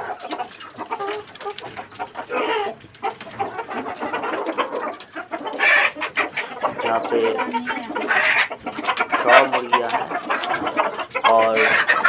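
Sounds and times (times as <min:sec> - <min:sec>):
chickens clucking and calling: 0:00.0 - 0:12.0.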